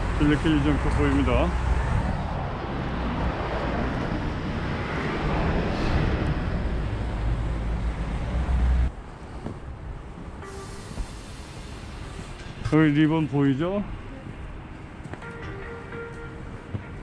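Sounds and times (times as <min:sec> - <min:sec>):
wind buffeting microphone: 0:00.8 - 0:07.5
outdoor hiss: 0:10.4 - 0:12.6.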